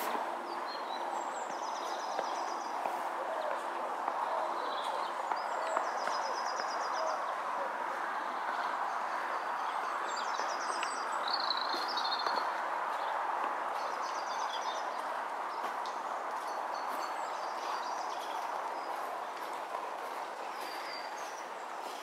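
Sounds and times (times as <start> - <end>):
footsteps crunching on icy snow: 10.0 - 22.0.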